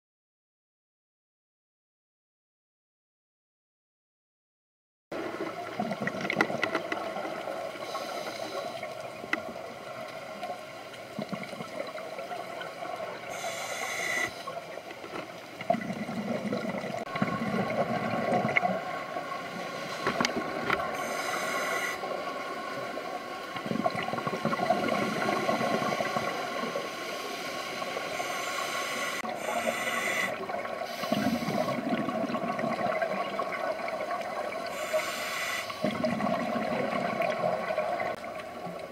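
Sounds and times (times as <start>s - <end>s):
exhaled bubbles gurgling: 5.2s - 38.9s
regulator breathing hiss: 7.7s - 9.0s, 13.2s - 14.6s, 19.5s - 20.3s, 20.9s - 22.2s, 24.8s - 31.9s, 34.6s - 35.9s.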